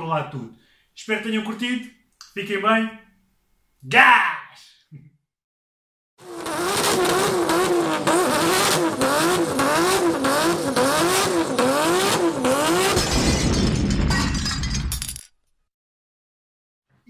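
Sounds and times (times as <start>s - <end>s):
car engine revving: 6.2s - 13.0s.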